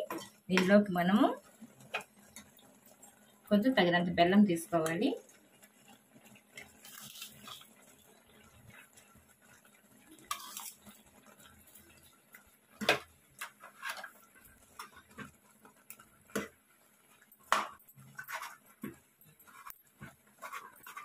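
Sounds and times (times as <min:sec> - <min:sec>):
spoon scraping a saucepan: 0:10.2 - 0:11.5, 0:13.6 - 0:15.2, 0:17.5 - 0:21.0.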